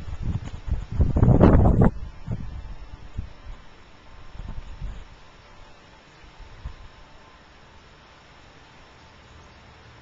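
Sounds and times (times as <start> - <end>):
bumps and rumble on microphone: 0.0 - 3.7
faint background hiss: 0.0 - 10.0.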